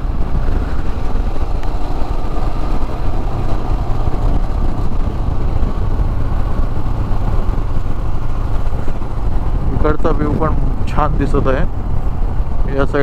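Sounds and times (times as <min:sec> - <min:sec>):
motorcycle engine running: 0:00.0 - 0:13.0
wind rush on microphone: 0:00.0 - 0:13.0.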